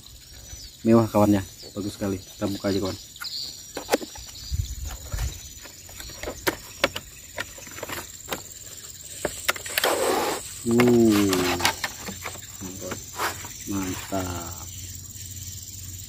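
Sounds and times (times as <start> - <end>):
cardboard rustle: 3.3 - 14.2.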